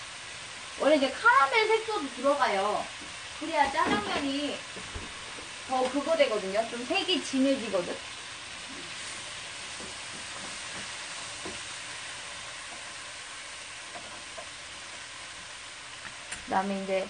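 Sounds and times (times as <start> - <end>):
meat and vegetables sizzling in a pan: 0.0 - 17.0.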